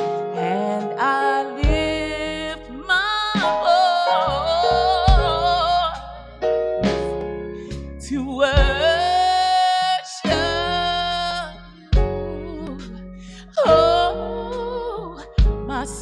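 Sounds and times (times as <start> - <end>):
keyboard accompaniment: 0.0 - 16.0
woman singing slow song: 0.3 - 6.3, 8.0 - 16.0.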